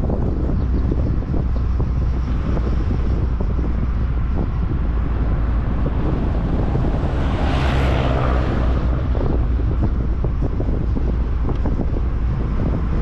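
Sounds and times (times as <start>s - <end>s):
car engine and tyre rumble: 0.0s - 13.0s
wind buffeting microphone: 0.0s - 13.0s
rushing swell: 4.4s - 10.3s.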